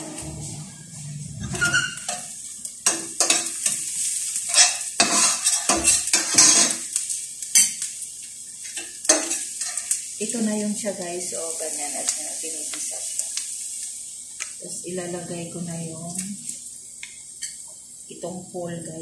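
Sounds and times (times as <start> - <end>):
food sizzling in oil: 0.0 - 19.0
spoon scraping a pan: 1.4 - 6.8, 8.7 - 10.0.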